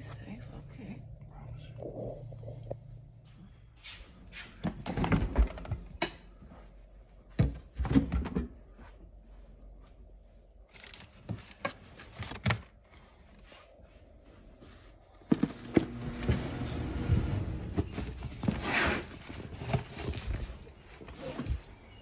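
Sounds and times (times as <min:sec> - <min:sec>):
rustling handling noise: 0:17.2 - 0:22.0.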